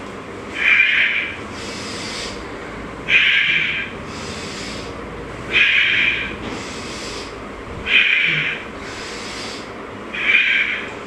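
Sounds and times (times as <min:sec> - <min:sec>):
soft hissy in-breath: 0:01.5 - 0:02.4, 0:04.1 - 0:05.0, 0:06.2 - 0:07.4, 0:08.8 - 0:09.8.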